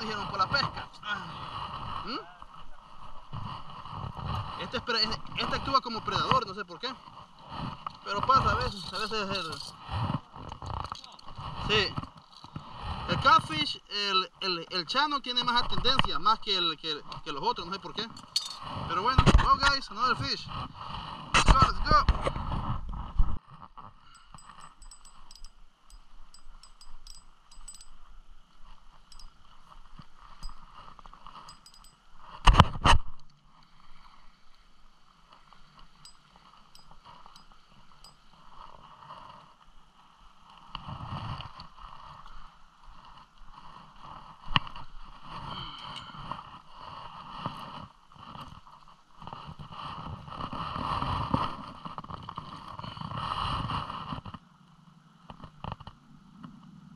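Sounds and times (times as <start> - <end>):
handling clicks and knocks: 24.2 - 28.0, 31.3 - 32.0.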